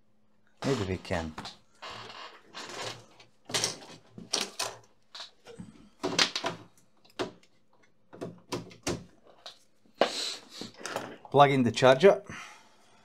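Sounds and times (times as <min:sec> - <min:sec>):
knocks clatters and rustles: 0:00.6 - 0:09.7.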